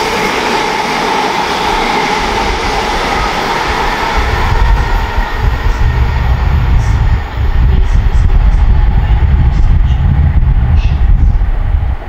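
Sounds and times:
electric train running: 0.0s - 12.0s
wind buffeting microphone: 0.0s - 12.0s.

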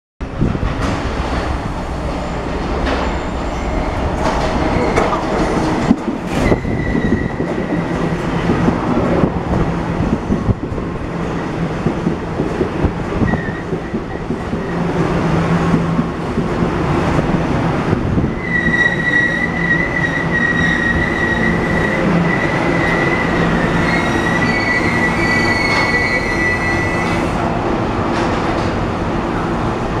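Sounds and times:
train wheel and track rumble: 0.2s - 30.0s
high wheel squeal: 6.4s - 7.7s, 18.4s - 27.3s.

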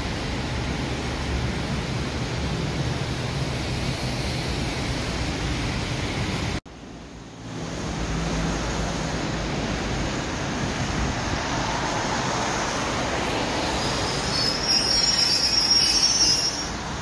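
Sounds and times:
electric train rumbling: 0.0s - 17.0s
high brake squeal: 13.6s - 16.9s.

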